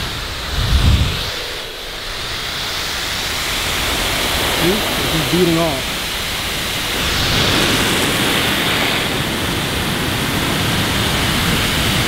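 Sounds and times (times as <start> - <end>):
car dryer blowing air: 0.0 - 9.4.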